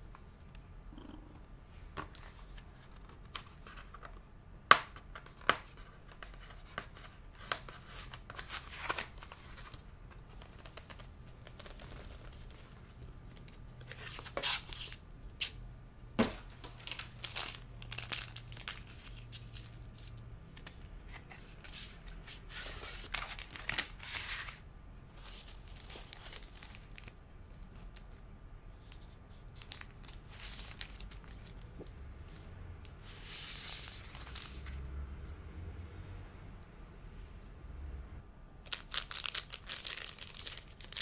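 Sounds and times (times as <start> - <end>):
plastic film crinkling and rustling: 16.5 - 20.2, 22.4 - 24.6, 25.2 - 28.2, 28.9 - 31.8, 38.7 - 41.0.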